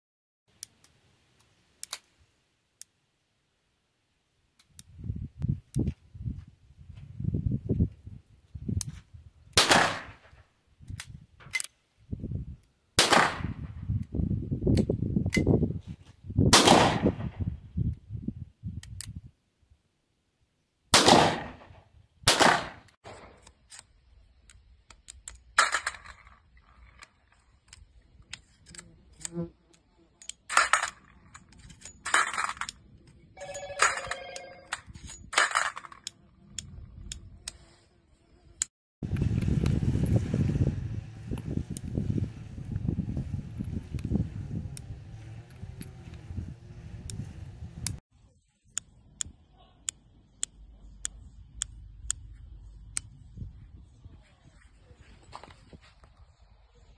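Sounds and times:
revolver gunshots with echo: 0:09.6 - 0:10.3, 0:13.0 - 0:13.8, 0:16.5 - 0:17.4, 0:20.9 - 0:23.4.

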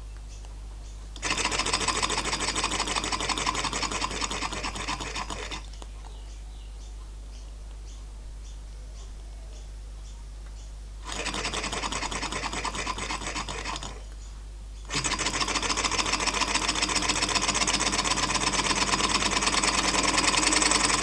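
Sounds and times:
small engine mechanical clatter: 0:01.2 - 0:05.8, 0:11.0 - 0:14.1, 0:14.9 - 0:21.0.

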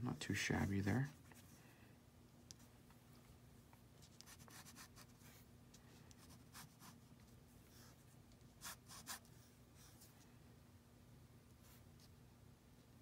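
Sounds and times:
pen scratching on paper: 0:04.0 - 0:05.4, 0:06.2 - 0:07.0, 0:08.6 - 0:09.3.

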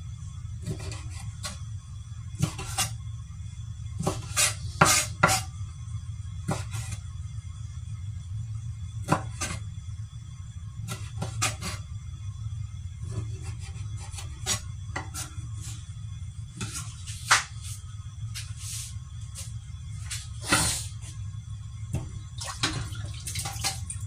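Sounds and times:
knife chopping on wooden board: 0:04.0 - 0:05.4.

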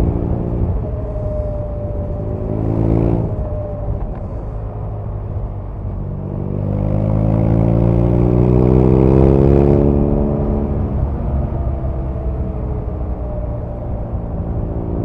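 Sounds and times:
motorcycle engine revving: 0:01.7 - 0:04.4, 0:06.0 - 0:12.0.

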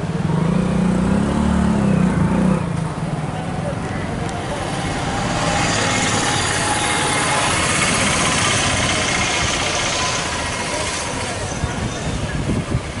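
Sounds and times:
road and wind noise: 0:00.0 - 0:13.0
motorcycle engine running: 0:04.3 - 0:13.0.

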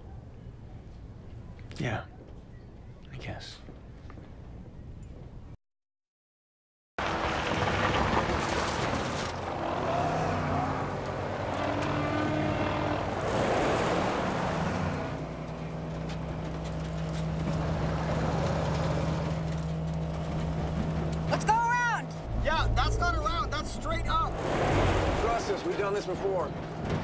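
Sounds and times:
truck engines revving: 0:07.0 - 0:27.0
tyres on gravel: 0:07.0 - 0:27.0
low engine drone: 0:09.5 - 0:26.8.

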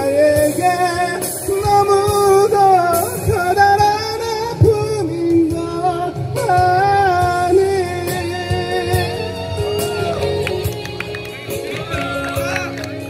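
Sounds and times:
man singing into a microphone: 0:00.0 - 0:10.1
karaoke backing track: 0:00.0 - 0:13.0.

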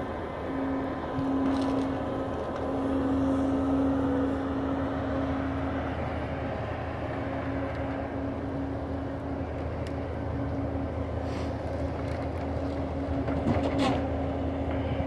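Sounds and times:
diesel engines droning: 0:00.0 - 0:15.0.

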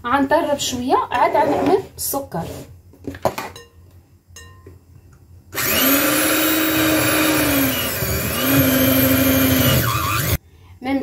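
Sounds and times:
electric hand mixer whine: 0:05.6 - 0:10.4.

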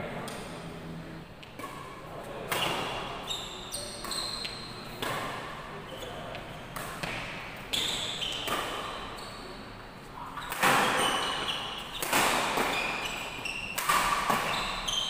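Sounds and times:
shoes squeaking on court: 0:02.5 - 0:15.0
rackets hitting shuttlecock: 0:03.8 - 0:05.5, 0:06.7 - 0:09.0, 0:10.4 - 0:15.0.

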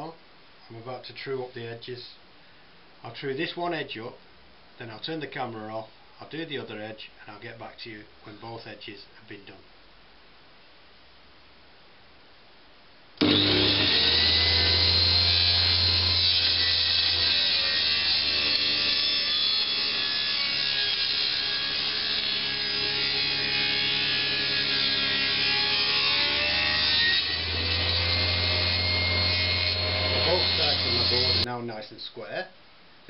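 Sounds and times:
table saw ripping wood: 0:13.2 - 0:31.5.

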